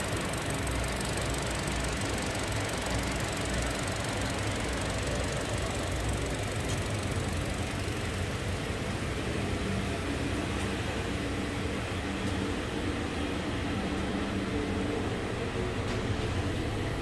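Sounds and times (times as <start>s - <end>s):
car engine idling: 0.0s - 17.0s.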